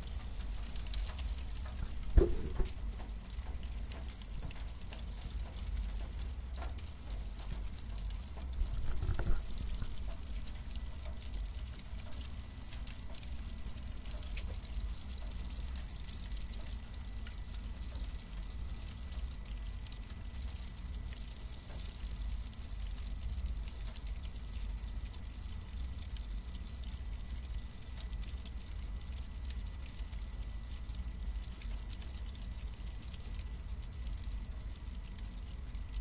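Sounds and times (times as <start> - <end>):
cardboard burning crackle: 0.0 - 36.0
low rumble of flame: 0.0 - 36.0
loud pops: 2.0 - 2.8.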